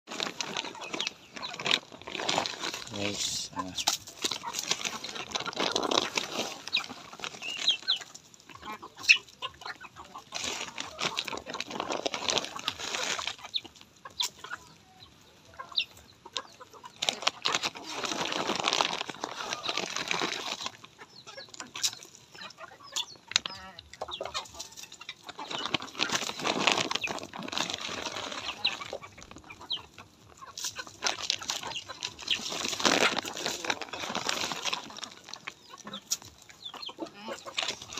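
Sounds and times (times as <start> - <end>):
rustling noise: 0.1 - 8.1, 10.2 - 13.8, 17.0 - 20.9, 24.3 - 36.4
chickens clucking: 0.1 - 37.9.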